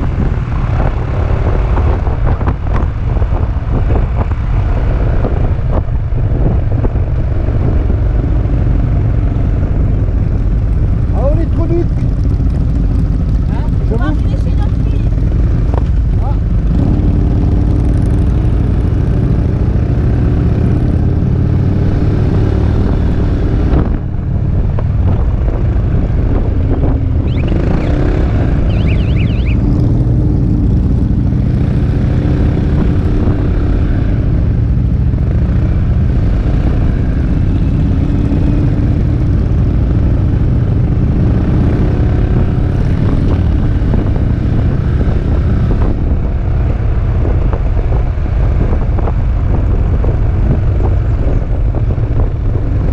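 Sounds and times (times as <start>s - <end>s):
wind rushing over microphone: 0.0s - 52.9s
scooter engine running: 27.2s - 30.3s.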